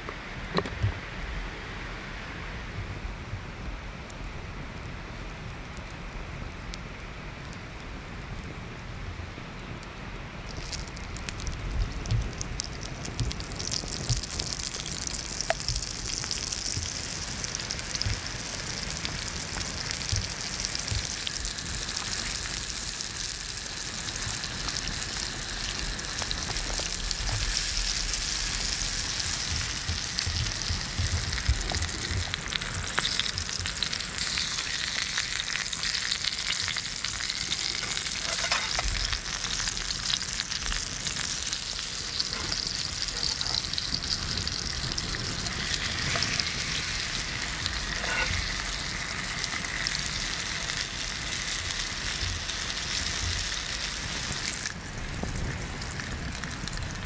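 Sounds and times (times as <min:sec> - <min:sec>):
small pops and crackles: 0:09.6 - 0:23.5, 0:24.1 - 0:48.7
meat sizzling in a pan: 0:12.3 - 0:56.8.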